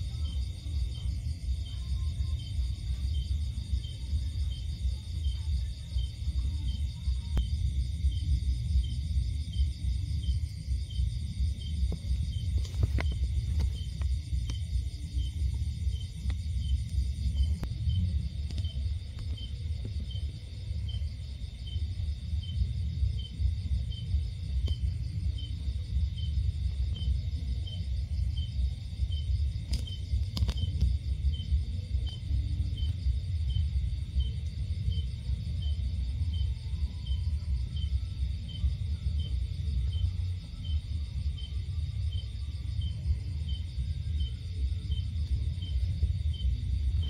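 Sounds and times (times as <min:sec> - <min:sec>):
crickets chirping: 0:00.0 - 0:47.0
loud low rumble: 0:07.4 - 0:42.0.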